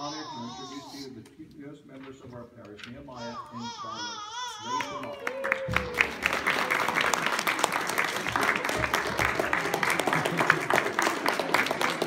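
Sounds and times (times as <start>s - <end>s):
crowd applauding: 4.7s - 12.0s.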